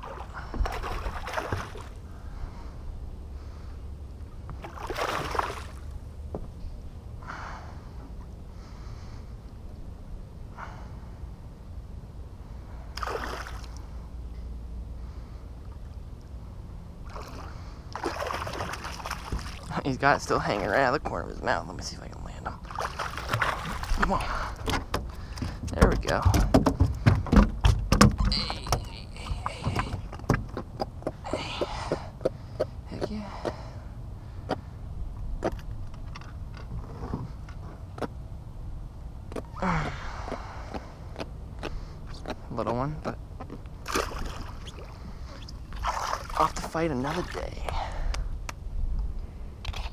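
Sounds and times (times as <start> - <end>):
steady low rumble: 0.0 - 49.9
fish thumping on boat deck: 23.2 - 32.0.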